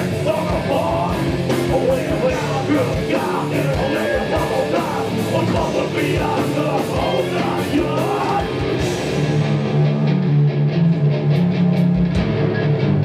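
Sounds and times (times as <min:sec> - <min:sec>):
heavy rock band playing: 0:00.0 - 0:13.0
shouted vocals: 0:01.7 - 0:08.7.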